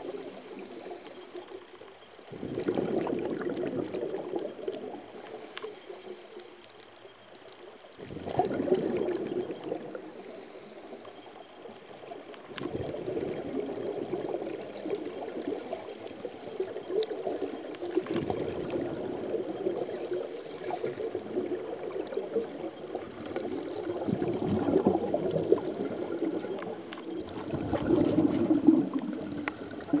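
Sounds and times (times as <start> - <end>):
scuba exhaust bubbles: 0.0 - 6.6, 7.9 - 30.0.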